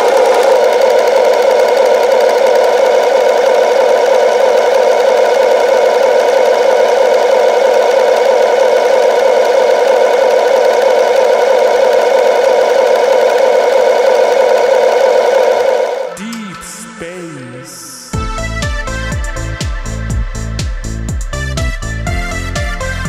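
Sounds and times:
simulated diesel engine idle: 0:00.0 - 0:16.1.

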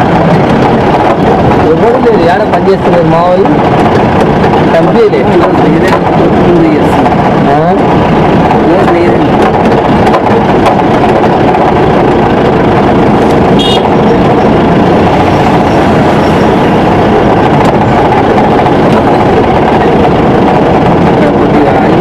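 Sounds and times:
vehicle engine and road noise: 0:00.0 - 0:22.0.

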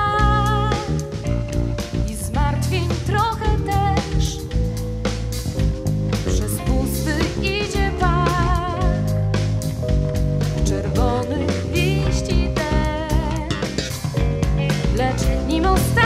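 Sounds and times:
live band playing jazz-pop: 0:00.0 - 0:16.0.

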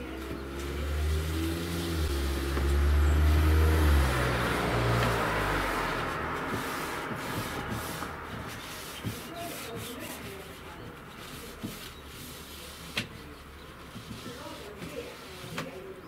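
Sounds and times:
passing vehicle: 0:00.0 - 0:09.4
brush strokes rubbing wood: 0:00.0 - 0:16.0.

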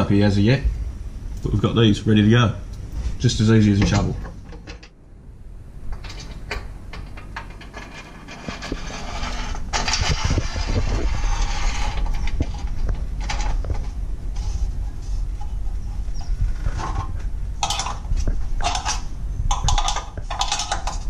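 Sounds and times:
metal bolt clicking and scraping: 0:05.9 - 0:13.7, 0:16.8 - 0:21.0.

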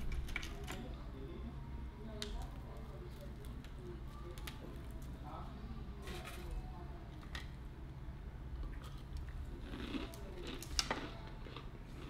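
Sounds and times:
low room hum: 0:00.0 - 0:12.0
biting and chewing fried food: 0:08.6 - 0:12.0.

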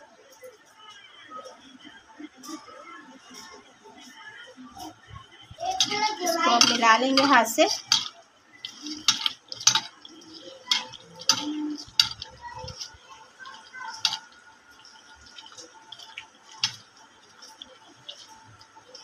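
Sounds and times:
steel bowl clinking and knocking: 0:05.7 - 0:19.0
hands mixing meat in wet marinade: 0:05.8 - 0:19.0.

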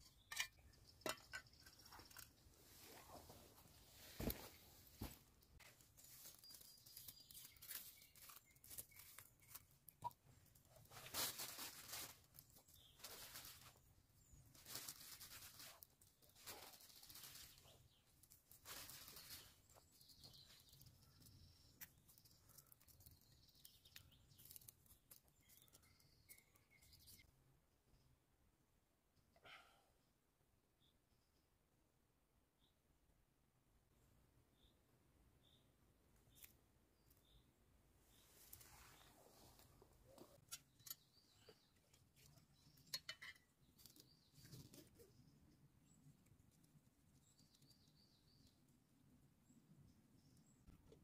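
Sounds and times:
bird chirping: 0:19.1 - 0:27.3, 0:34.5 - 0:48.8.

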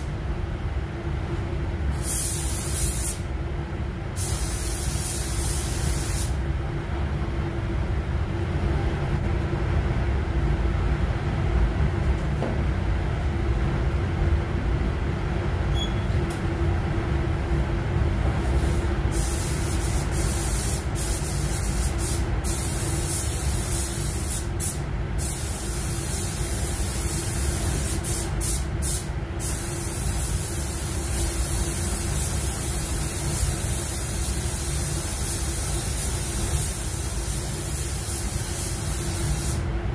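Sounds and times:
ventilation rumble and hum: 0:00.0 - 0:39.9
spray gun air hiss: 0:01.9 - 0:03.3, 0:04.1 - 0:06.4, 0:18.3 - 0:39.7.

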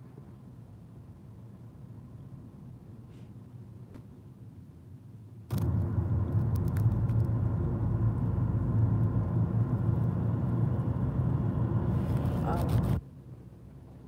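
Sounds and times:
car interior rumble: 0:05.5 - 0:14.0.

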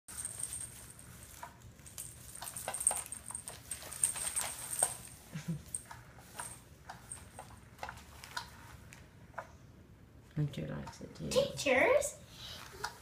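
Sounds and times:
cat playing with crinkly toy: 0:00.1 - 0:08.7.

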